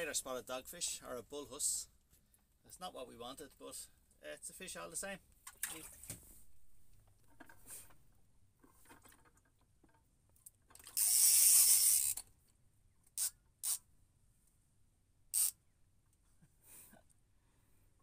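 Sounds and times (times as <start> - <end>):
fishing reel drag buzzing: 11.0 - 12.2, 13.2 - 13.8, 15.3 - 15.6.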